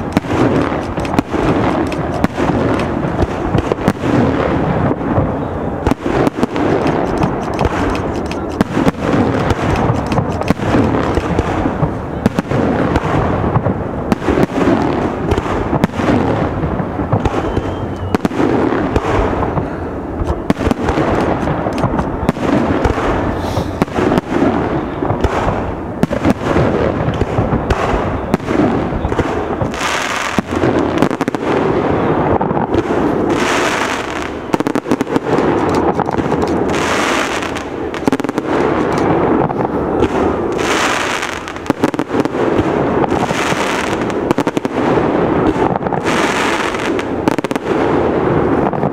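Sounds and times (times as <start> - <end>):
fireworks bursting: 0.0 - 48.9
fireworks hiss: 22.8 - 24.4.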